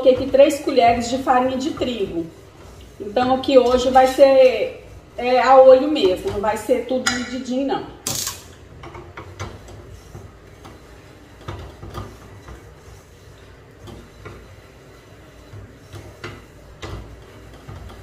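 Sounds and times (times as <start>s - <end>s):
whisk scraping a metal pan: 0.0s - 7.6s.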